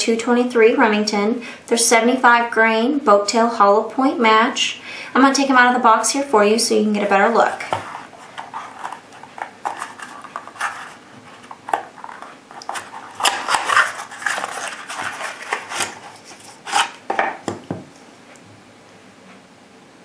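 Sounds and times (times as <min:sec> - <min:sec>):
cardboard box scraping and rustling: 0:07.4 - 0:17.0.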